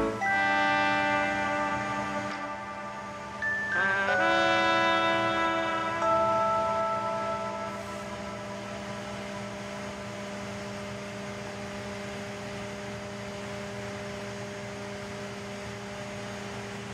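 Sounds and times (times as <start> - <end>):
background music: 0.0 - 9.7
electrical hum with fan noise: 0.0 - 16.9.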